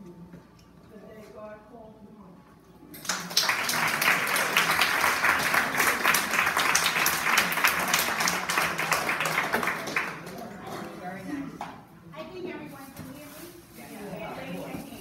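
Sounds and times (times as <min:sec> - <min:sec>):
crowd applauding: 0:03.0 - 0:10.5.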